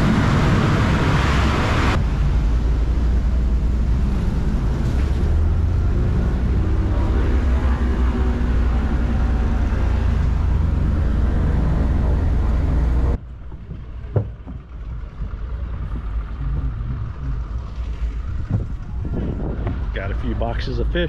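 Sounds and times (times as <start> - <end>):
loud engine drone: 0.0 - 13.2, 13.9 - 21.0
low rumble: 0.0 - 21.0
sharp knocks: 13.4 - 15.3.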